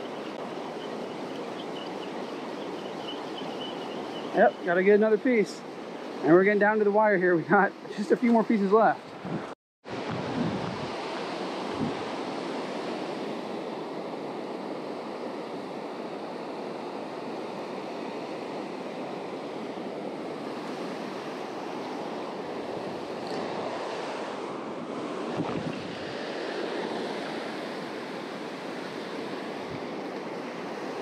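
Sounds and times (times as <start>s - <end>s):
wind on microphone: 9.2s - 12.6s, 22.5s - 31.0s
surf breaking on beach: 20.4s - 31.0s.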